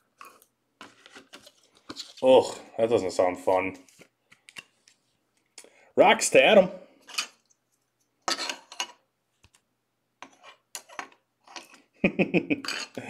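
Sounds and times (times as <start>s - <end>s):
person's voice: 2.2s - 3.9s, 6.0s - 6.9s.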